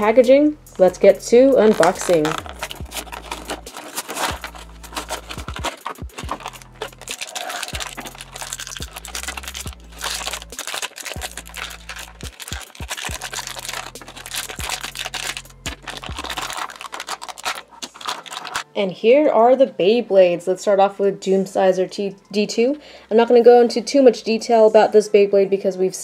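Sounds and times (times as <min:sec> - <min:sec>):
background music: 0:00.0 - 0:26.0
plastic packaging crinkling: 0:01.6 - 0:18.7.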